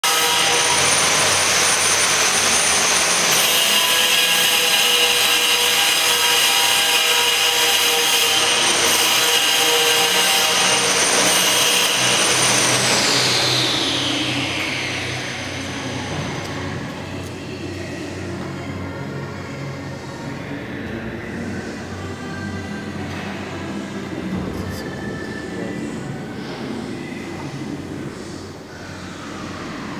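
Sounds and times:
router spindle high-pitched whine: 0.0s - 19.1s.

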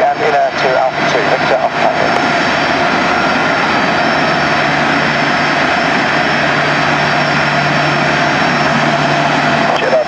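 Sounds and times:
jet engine whine: 0.0s - 10.0s
low hum: 0.0s - 10.0s.

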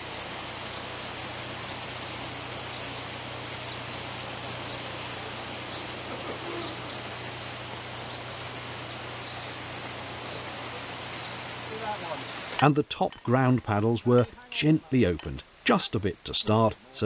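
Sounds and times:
small bird chirping: 5.6s - 9.6s.

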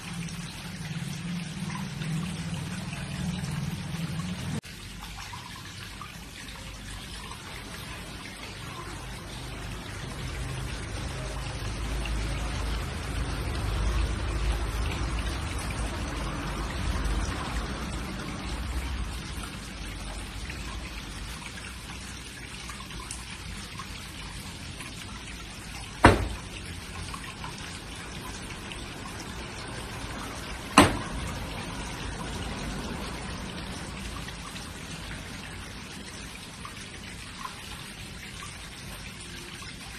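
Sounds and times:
water dripping and trickling: 0.0s - 39.9s
steady rain: 7.5s - 39.4s
sharp thumps: 26.0s - 26.5s.

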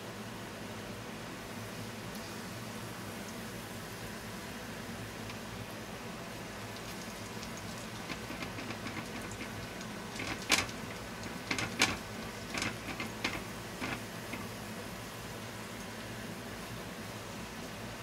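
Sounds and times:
garlic sizzling in oil: 1.7s - 15.7s
sharp pops and crackles: 6.7s - 14.6s.

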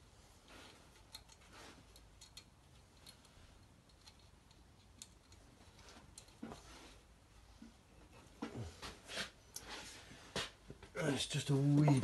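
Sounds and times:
small metallic clicks: 0.9s - 6.4s
soft rustle: 5.2s - 10.6s.

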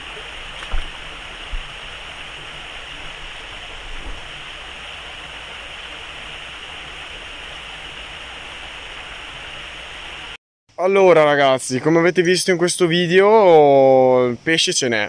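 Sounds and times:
low thumps: 0.0s - 4.5s
waterfall splashing into pool: 0.0s - 10.4s.

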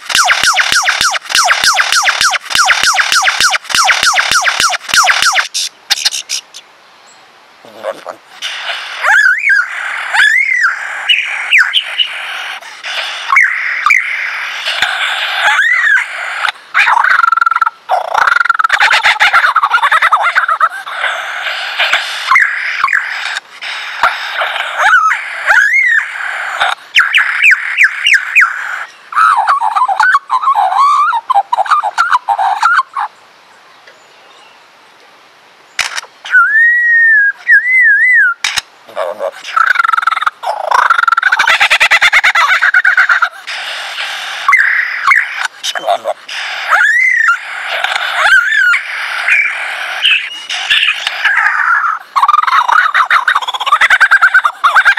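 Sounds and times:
lyrebird whistling song: 0.0s - 7.2s, 8.4s - 33.1s, 36.2s - 38.4s, 39.5s - 54.9s
sharp clicks: 35.8s - 36.1s, 38.4s - 38.7s.

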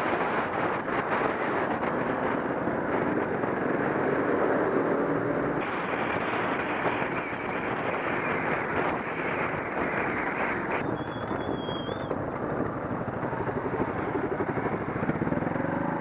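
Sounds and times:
wind rush on microphone: 0.0s - 16.0s
motorcycle engine running: 10.8s - 16.0s.

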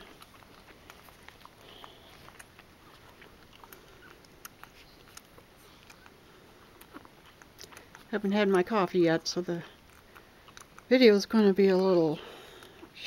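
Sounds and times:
dog licking puppy wet clicks: 0.0s - 6.2s.

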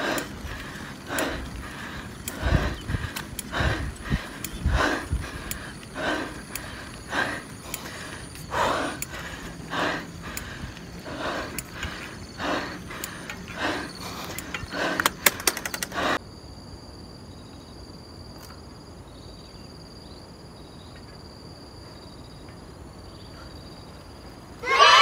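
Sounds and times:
bike clicks and rattles: 0.0s - 16.2s
person panting hard: 0.0s - 16.2s.

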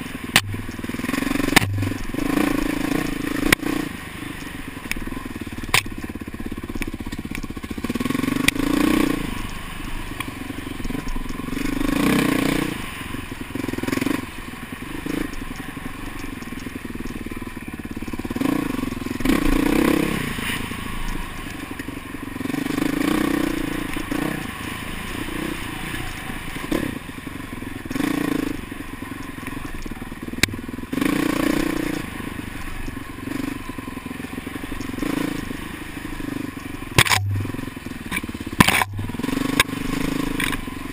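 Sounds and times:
dirt bike engine revving: 0.0s - 40.9s
sharp clicks and clatter: 0.3s - 3.7s, 4.4s - 7.7s, 37.0s - 40.7s.

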